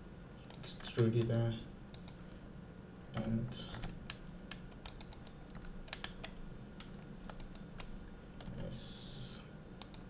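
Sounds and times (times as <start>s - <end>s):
faint low hum: 0.0s - 10.0s
keyboard and mouse clicks: 0.4s - 2.2s, 3.1s - 8.6s, 9.8s - 10.0s.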